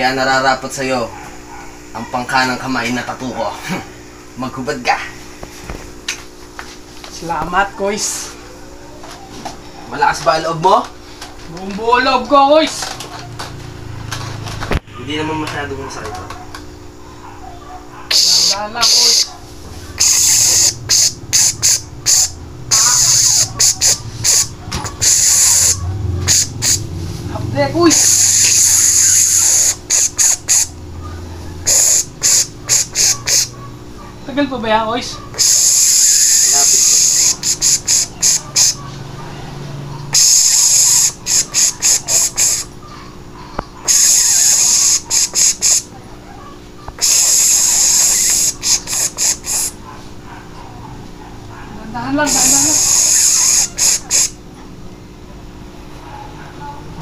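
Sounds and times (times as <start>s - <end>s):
man hissing through teeth: 18.1s - 19.3s, 20.0s - 26.8s, 27.9s - 30.8s, 31.6s - 33.6s, 35.4s - 38.8s, 40.1s - 42.7s, 43.8s - 45.9s, 47.0s - 49.8s, 52.3s - 54.4s.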